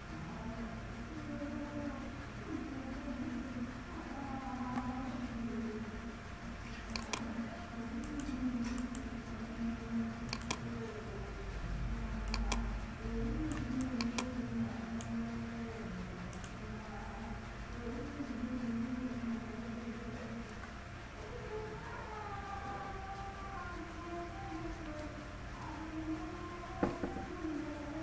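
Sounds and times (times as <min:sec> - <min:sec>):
low background hum: 0:00.0 - 0:28.0
computer keys clicking: 0:06.8 - 0:07.3, 0:08.0 - 0:09.2, 0:10.2 - 0:10.8, 0:12.2 - 0:12.8, 0:13.4 - 0:15.2, 0:16.2 - 0:16.6
mouse clicks: 0:06.9 - 0:07.3, 0:10.3 - 0:10.6, 0:12.3 - 0:12.7.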